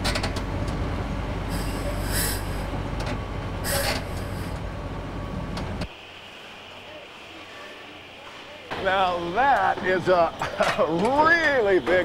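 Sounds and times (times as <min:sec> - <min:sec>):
crane diesel engine running: 0:00.0 - 0:10.9
short hisses: 0:01.5 - 0:02.7, 0:03.6 - 0:04.6.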